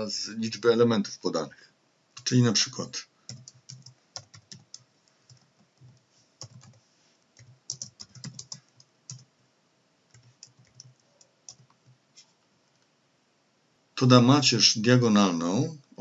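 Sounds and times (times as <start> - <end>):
typing on computer keyboard: 3.3 - 6.8, 7.4 - 9.3, 10.1 - 12.0.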